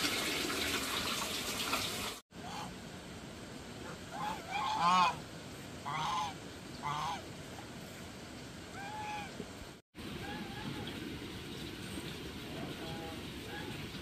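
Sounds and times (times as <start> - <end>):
waterfowl honking: 2.4 - 2.7, 3.8 - 5.2, 5.8 - 7.3, 8.7 - 9.4, 10.2 - 11.0, 12.5 - 14.0.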